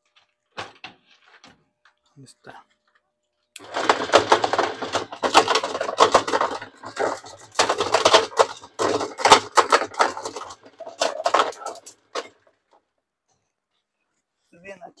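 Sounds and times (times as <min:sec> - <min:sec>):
washer agitator clattering: 0:03.6 - 0:12.4.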